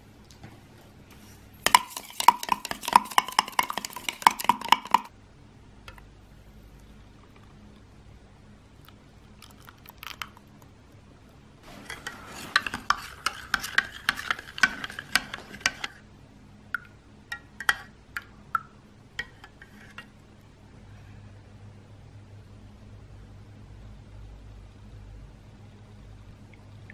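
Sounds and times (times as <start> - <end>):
metal spoon clinking in cup: 1.7 - 5.1
spoon taps: 1.7 - 5.1, 11.9 - 15.9.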